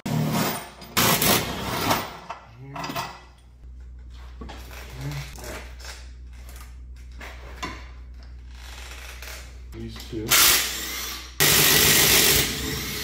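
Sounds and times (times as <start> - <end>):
steady low hum: 0.1 - 13.0
metal tools clinking and rattling: 2.0 - 3.5.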